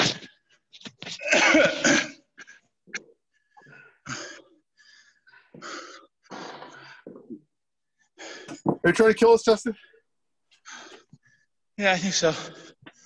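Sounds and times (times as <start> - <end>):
person breathing heavily: 2.4 - 7.3, 7.9 - 8.8, 9.8 - 11.6.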